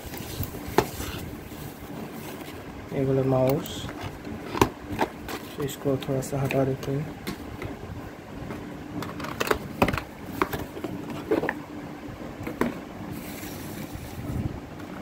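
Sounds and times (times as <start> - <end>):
cardboard scraping rustle: 0.0 - 2.6, 13.1 - 14.4.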